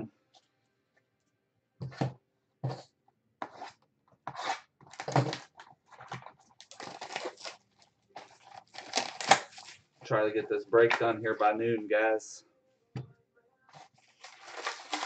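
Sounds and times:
plastic shrink wrap tearing and crinkling: 4.4s - 9.9s, 13.8s - 15.0s.

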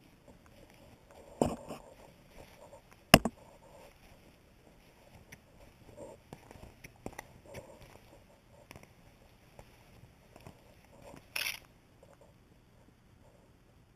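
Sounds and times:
camera handling knocks: 3.2s - 3.4s.

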